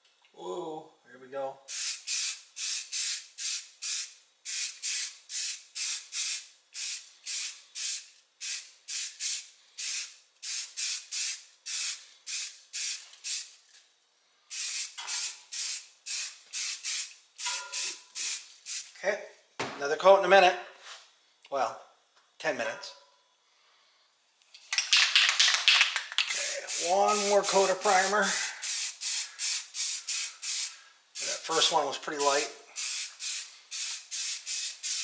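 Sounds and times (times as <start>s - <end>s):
aerosol can spraying: 1.7s - 13.6s, 14.5s - 18.9s, 25.4s - 35.0s.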